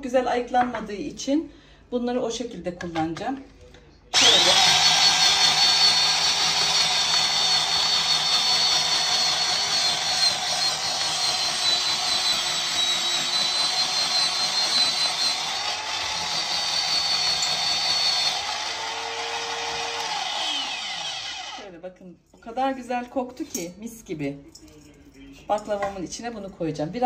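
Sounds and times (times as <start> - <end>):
electric grater whining: 4.2 - 21.7.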